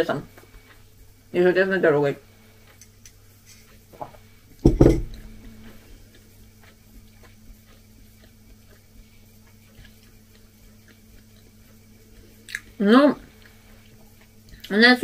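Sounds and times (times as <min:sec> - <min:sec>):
steady low hum: 0:00.0 - 0:15.0
low thump: 0:04.6 - 0:05.2.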